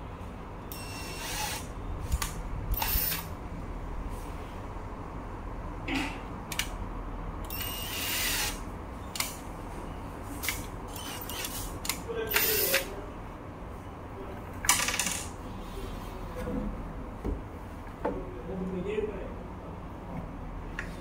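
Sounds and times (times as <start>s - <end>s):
cordless drill running: 0.7s - 1.7s, 2.7s - 3.3s, 7.5s - 8.6s, 10.9s - 11.6s.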